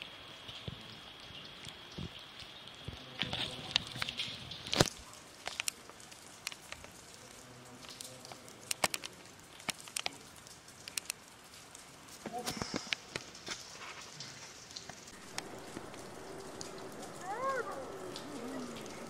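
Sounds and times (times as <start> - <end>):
faint murmur: 15.2 - 19.0.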